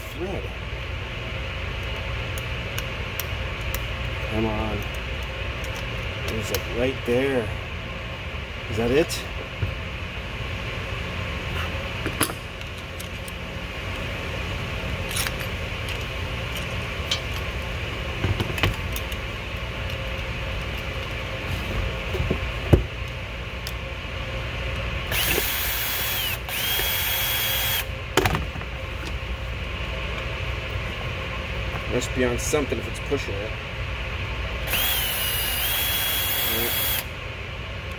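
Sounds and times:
parts being handled clicks: 4.7s - 6.7s
cordless drill whining: 25.1s - 27.9s, 34.6s - 37.1s.

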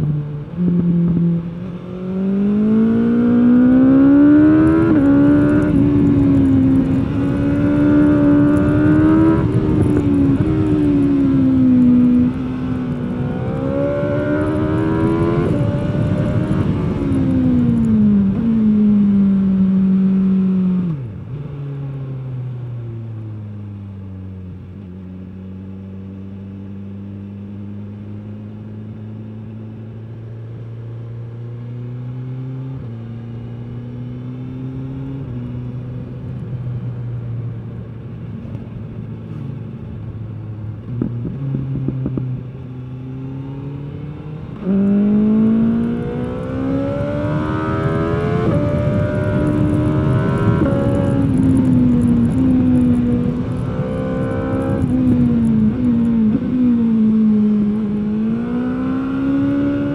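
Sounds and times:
motorcycle engine revving: 0.0s - 21.6s, 39.1s - 59.9s.

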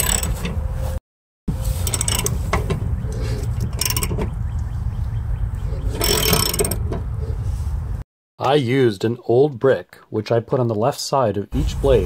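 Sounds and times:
ratchet wrench clicking: 0.0s - 0.3s, 1.8s - 2.4s, 3.6s - 4.1s, 6.0s - 6.8s
steady low rumble: 0.6s - 6.0s, 6.7s - 8.0s.

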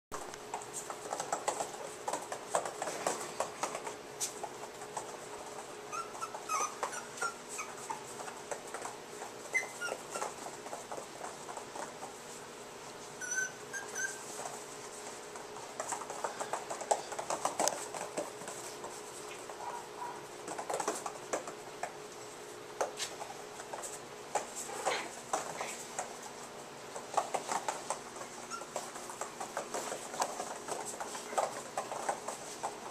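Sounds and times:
puppy paws clicking on floor: 0.1s - 32.9s
high puppy whimpers: 5.8s - 8.4s, 9.4s - 10.6s, 13.0s - 14.5s, 28.2s - 29.2s.

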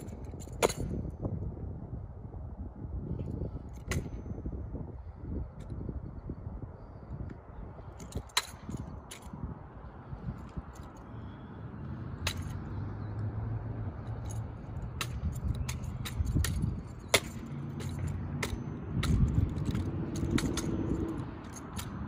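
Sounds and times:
low engine hum: 0.0s - 22.0s
metal parts rattling: 14.0s - 22.0s.

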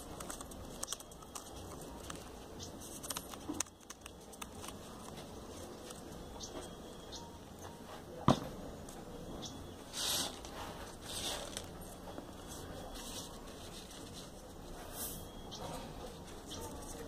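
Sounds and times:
paper rustling: 0.0s - 6.0s, 10.0s - 15.2s.

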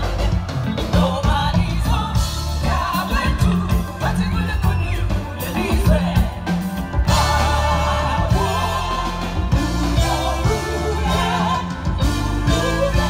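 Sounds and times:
live band playing: 0.0s - 13.0s
woman singing lead: 0.0s - 13.0s.

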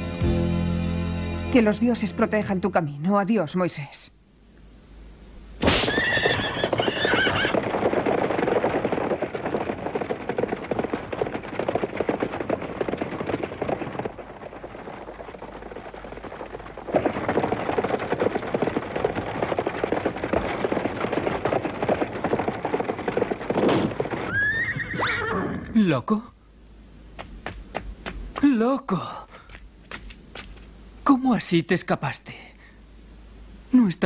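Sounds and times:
galloping hoof clatter: 5.6s - 25.1s, 27.2s - 28.4s, 29.5s - 30.7s
horse whinnying: 5.7s - 7.7s, 24.2s - 25.8s.

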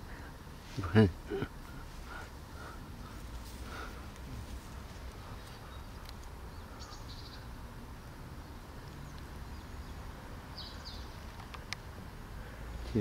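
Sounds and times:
faint high bird chirping: 5.1s - 7.6s, 8.4s - 11.4s.

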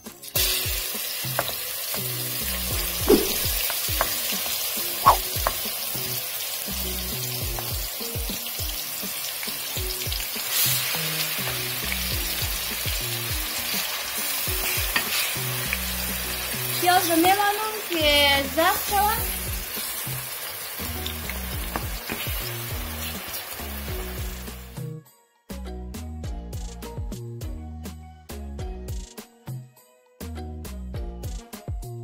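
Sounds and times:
onion sizzling in hot oil: 0.0s - 24.8s.

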